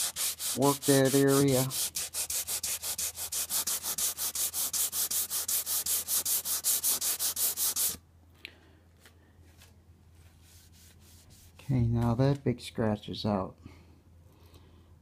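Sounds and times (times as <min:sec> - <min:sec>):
sandpaper rubbing on wet metal: 0:00.0 - 0:08.0.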